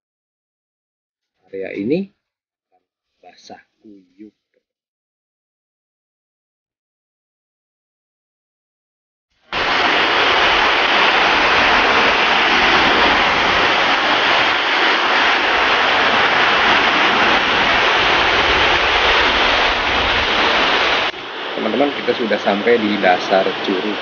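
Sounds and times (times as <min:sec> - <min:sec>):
waterfall rushing: 0:09.5 - 0:24.0.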